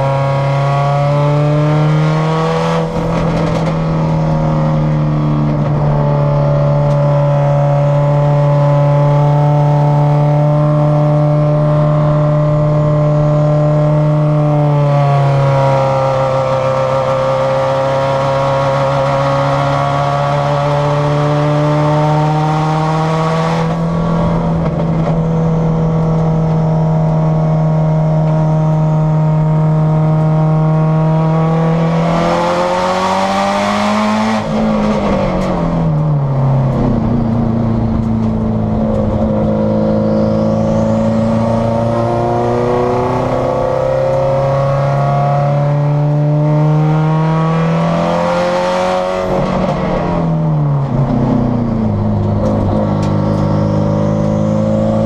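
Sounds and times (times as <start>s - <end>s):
race car engine accelerating: 0.0s - 55.0s.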